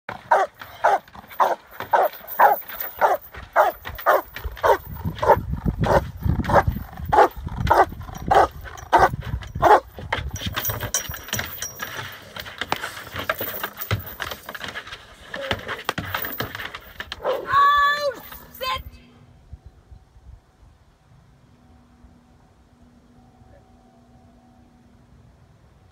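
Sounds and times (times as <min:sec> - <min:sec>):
dog barking: 0:00.3 - 0:09.9.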